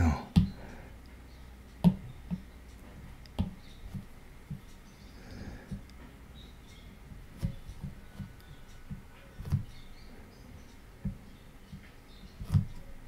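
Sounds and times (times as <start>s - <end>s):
stylus tapping on tablet screen: 1.7s - 4.8s.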